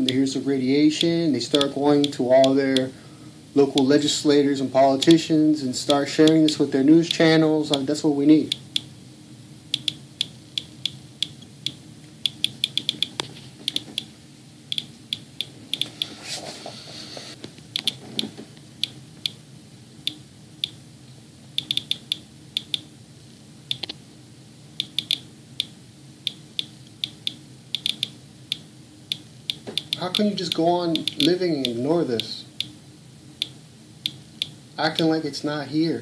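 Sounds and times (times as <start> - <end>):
geiger counter clicking: 0.0 - 2.9, 3.7 - 4.0, 4.8 - 5.2, 5.8 - 8.9, 9.7 - 14.1, 14.7 - 16.1, 17.8 - 18.0, 18.8 - 19.4, 20.0 - 20.8, 21.6 - 22.9, 23.7 - 24.0, 24.8 - 32.8, 33.4 - 35.1
faint low hum: 0.0 - 36.0.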